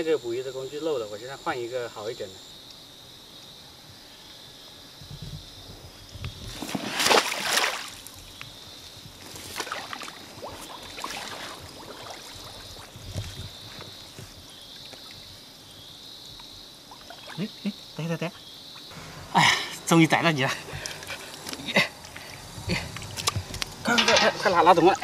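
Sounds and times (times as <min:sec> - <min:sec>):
basket plunged into water splash: 0:06.5 - 0:08.1, 0:09.4 - 0:12.9
hands sloshing in water: 0:06.5 - 0:08.1, 0:09.3 - 0:13.6.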